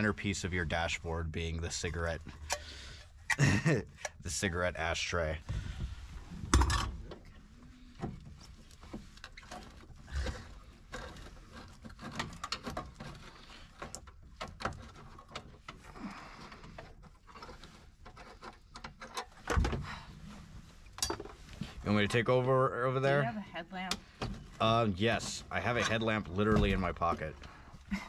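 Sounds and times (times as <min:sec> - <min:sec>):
dashboard parts clicking and rattling: 0:16.5 - 0:19.9.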